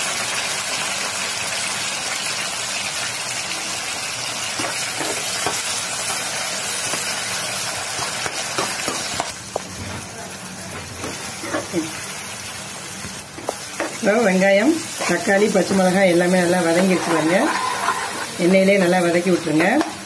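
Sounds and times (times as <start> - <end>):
vegetables sizzling in hot oil: 0.0 - 20.0
metal spatula scraping pan: 16.4 - 18.5.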